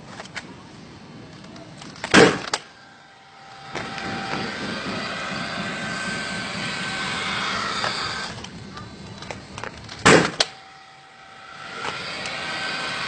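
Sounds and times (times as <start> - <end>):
steady whirring drone: 0.0 - 13.0
nail gun bang: 2.0 - 2.7, 10.0 - 10.6.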